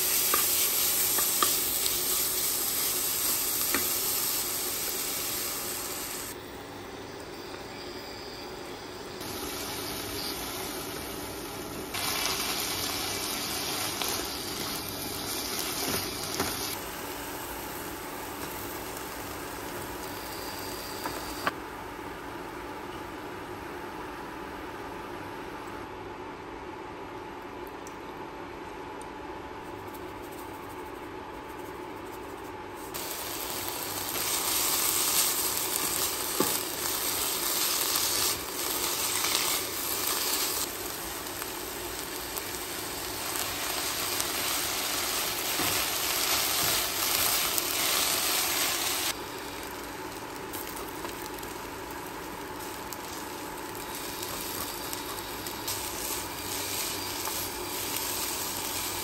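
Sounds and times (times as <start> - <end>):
food sizzling in a pan: 0.0 - 6.4, 9.2 - 21.6, 32.8 - 59.0.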